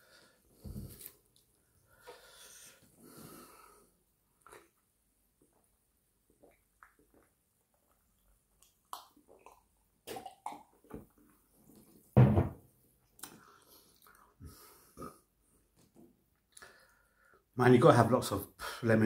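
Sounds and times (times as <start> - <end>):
person gulping a drink: 4.4 - 12.0
loud thump: 12.2 - 12.6.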